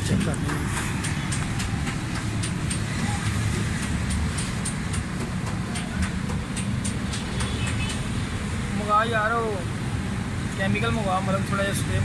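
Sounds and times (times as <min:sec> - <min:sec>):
sharp high-pitched clicks: 0:00.0 - 0:08.2
traffic rumble: 0:00.0 - 0:12.0.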